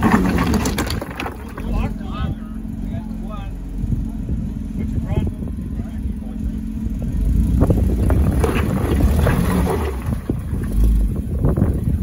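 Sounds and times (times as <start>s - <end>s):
tyres crunching over rocks: 0.0s - 2.1s
vehicle engine running: 0.0s - 12.0s.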